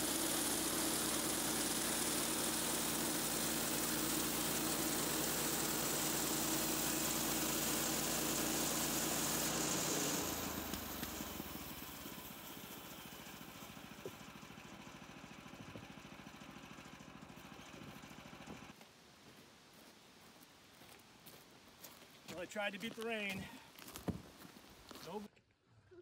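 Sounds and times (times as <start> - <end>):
saw blade hissing in wood: 0.0 - 14.2
gas engine running: 0.0 - 18.8.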